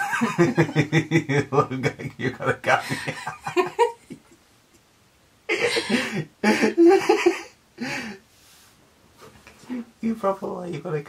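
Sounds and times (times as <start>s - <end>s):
people laughing: 0.0s - 4.4s, 5.5s - 7.5s.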